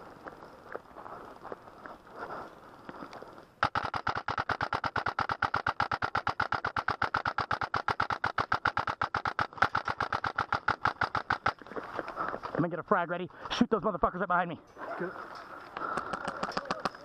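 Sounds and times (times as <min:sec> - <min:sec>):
airsoft gun full-auto firing: 0:03.6 - 0:11.5.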